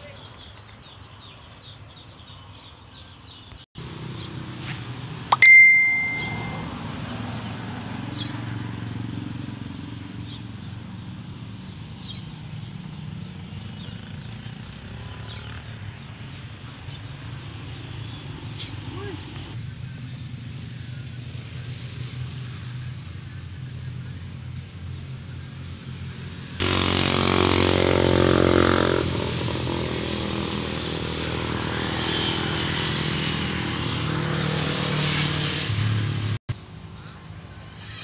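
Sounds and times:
faint bird chirps: 0:05.3 - 0:06.7
sharp bell-like ding: 0:05.3 - 0:06.7.

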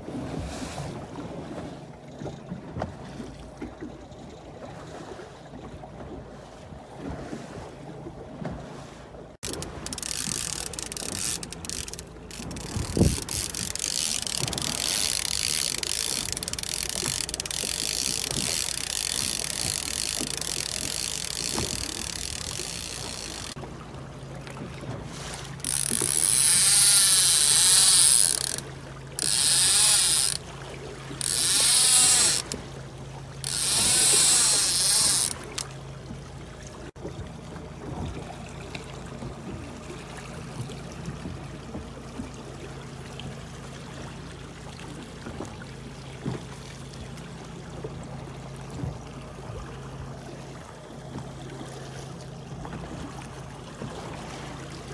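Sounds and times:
low boat hum: 0:00.0 - 0:54.9
wind: 0:00.0 - 0:54.9
fishing reel drag buzzing: 0:09.4 - 0:23.6, 0:25.5 - 0:30.5, 0:31.1 - 0:32.7, 0:33.4 - 0:35.7
water rushing: 0:09.4 - 0:54.9.

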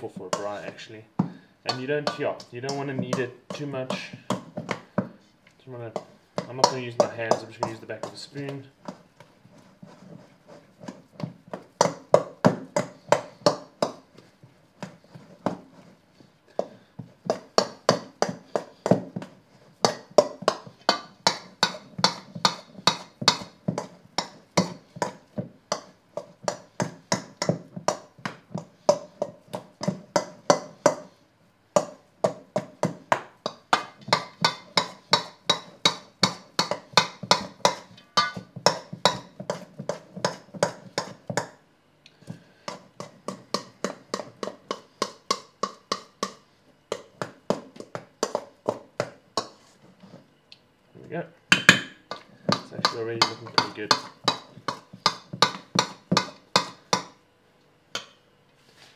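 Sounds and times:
spoon knocking in metal bowl: 0:19.8 - 0:31.1, 0:31.8 - 0:41.6, 0:51.5 - 0:57.2.

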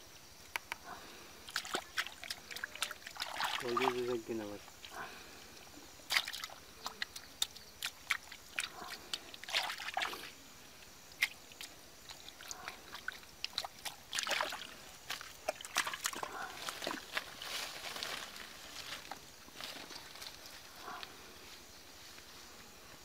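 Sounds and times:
muddy water splashing: 0:01.4 - 0:10.4, 0:11.1 - 0:18.3
hand scooping wet mud: 0:01.5 - 0:05.0, 0:06.1 - 0:10.3, 0:11.2 - 0:17.4.

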